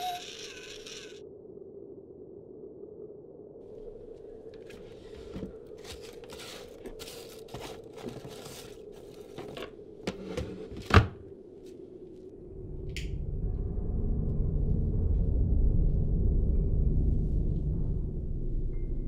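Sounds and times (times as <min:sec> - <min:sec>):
packets rustling and crinkling: 0:04.6 - 0:09.8.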